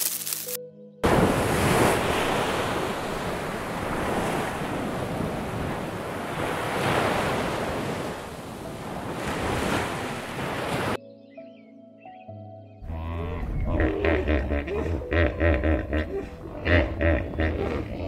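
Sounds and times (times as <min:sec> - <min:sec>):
ocean surf on beach: 0:01.0 - 0:11.0.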